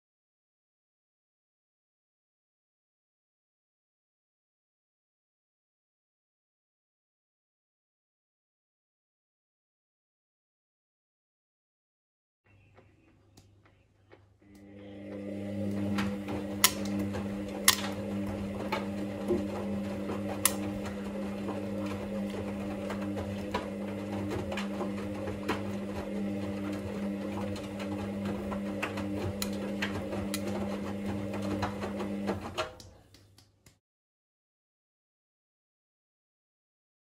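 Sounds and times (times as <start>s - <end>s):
laundry machine motor humming: 14.4s - 33.1s.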